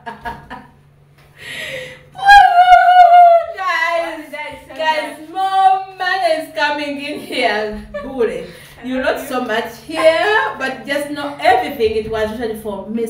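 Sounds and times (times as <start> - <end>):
woman crying out: 1.7 - 4.1.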